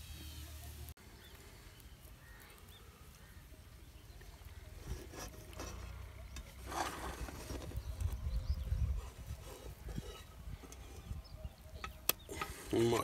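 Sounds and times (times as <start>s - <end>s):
spatula scraping a pan: 4.7s - 8.1s, 8.8s - 12.7s
low wind rumble: 5.9s - 12.6s.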